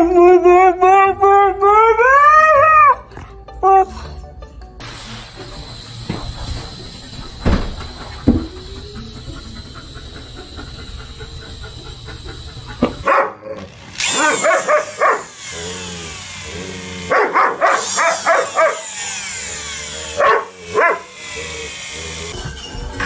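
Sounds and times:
dog yowling and whining: 0.0s - 3.9s, 12.5s - 16.1s, 17.1s - 22.2s
steady hiss: 4.8s - 13.0s.

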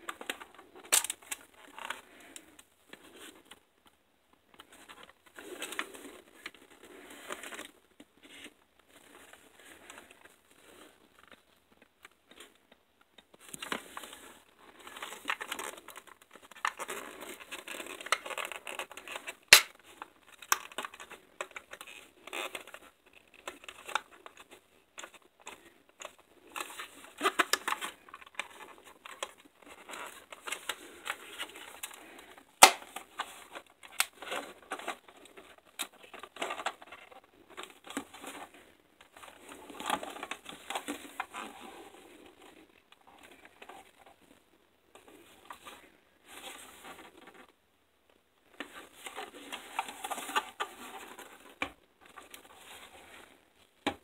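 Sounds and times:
loud sharp plastic snaps: 0.8s - 1.3s, 19.5s - 19.8s, 32.6s - 33.0s
plastic rubbing and scraping: 13.2s - 47.6s, 48.4s - 54.0s.

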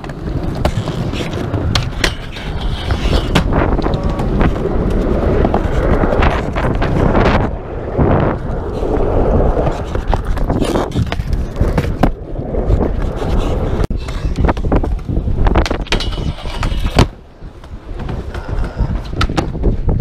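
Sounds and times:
skateboard clacks and knocks: 0.0s - 7.4s, 12.8s - 20.0s
skateboard scraping: 0.0s - 20.0s
skateboard wheels rolling on concrete: 0.0s - 20.0s
skateboard smack: 1.7s - 4.5s, 15.6s - 19.7s.

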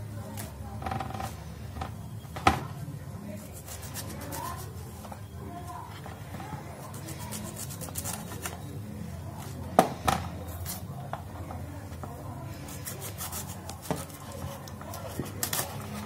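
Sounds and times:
knife cutting cauliflower: 6.8s - 8.6s, 12.6s - 16.0s.

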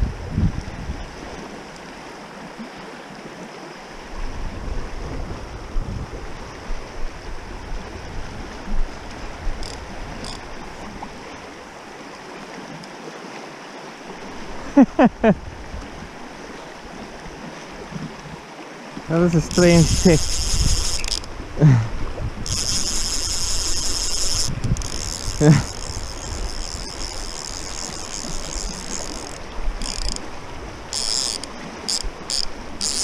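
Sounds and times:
wind buffeting microphone: 0.0s - 1.3s, 4.2s - 11.3s, 19.1s - 32.8s
river rushing over stones: 8.1s - 33.0s
loud pitched squeaks: 19.4s - 21.3s.

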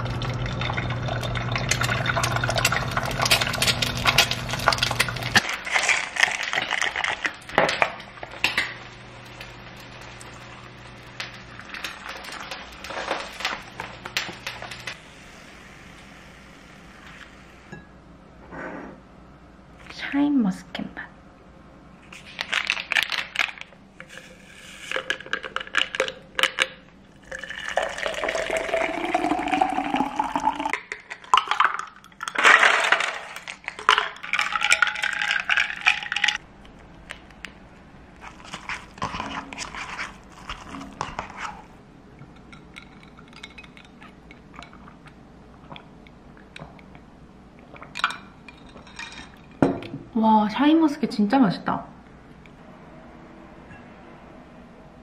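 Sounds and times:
water pouring into a glass: 0.0s - 3.8s, 27.2s - 32.2s
packet tearing open: 22.2s - 23.7s, 38.2s - 41.6s.

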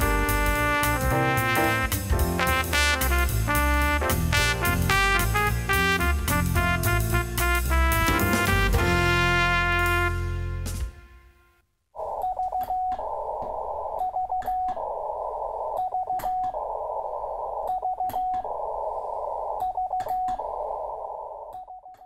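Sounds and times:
static clicks: 12.0s - 22.0s.

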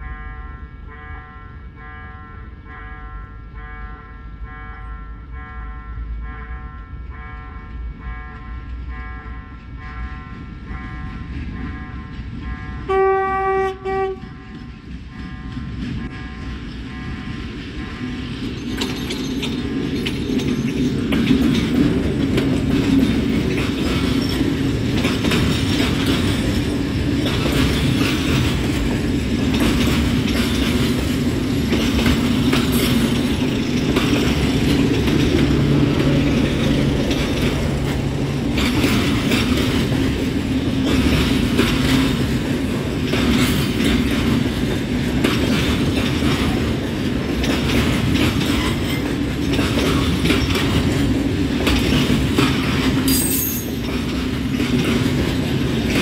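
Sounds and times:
diesel locomotive engine drone: 0.0s - 56.0s
wheels clicking over rail joints: 14.2s - 56.0s.

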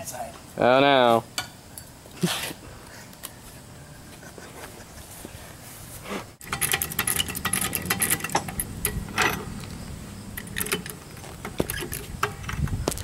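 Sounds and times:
metal floor jack clicking and rattling: 6.4s - 13.0s.

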